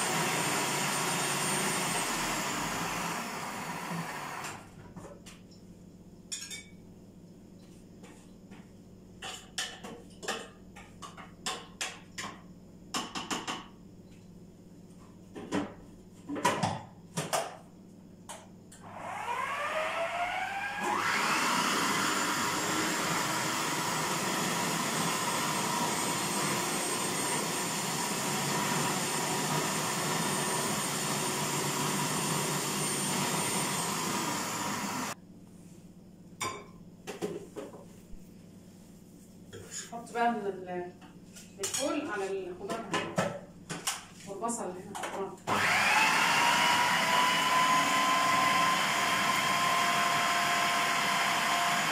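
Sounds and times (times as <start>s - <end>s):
electric blender motor: 0.0s - 4.6s, 18.8s - 35.2s, 45.5s - 51.9s.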